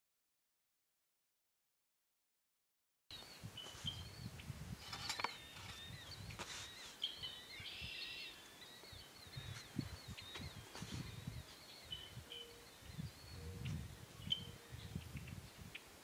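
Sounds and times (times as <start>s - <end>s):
wind rumble on microphone: 3.1s - 8.2s, 8.8s - 16.0s
birds chirping: 3.1s - 16.0s.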